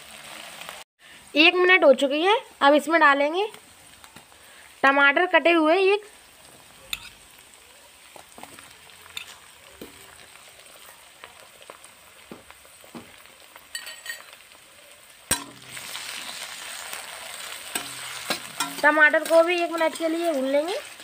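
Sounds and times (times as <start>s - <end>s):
vegetables sizzling in hot oil: 0.0s - 21.0s
metal spoon clinking on pan: 6.9s - 7.2s, 9.1s - 10.0s, 13.7s - 14.4s, 15.3s - 15.7s, 17.7s - 20.4s.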